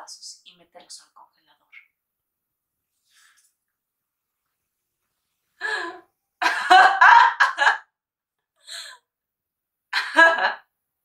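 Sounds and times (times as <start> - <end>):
woman laughing: 5.6 - 7.9.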